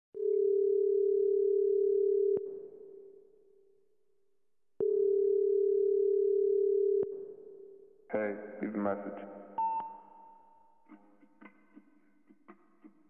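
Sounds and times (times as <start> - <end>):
reverberant telephone ringback tone: 4.8 - 7.0.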